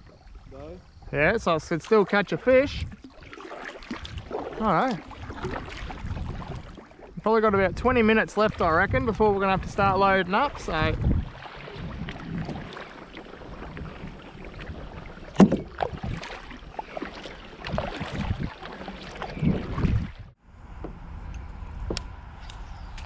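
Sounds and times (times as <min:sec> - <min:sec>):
paddle strokes splashing: 0:00.0 - 0:20.4
paddle knocking on kayak: 0:08.5 - 0:20.1.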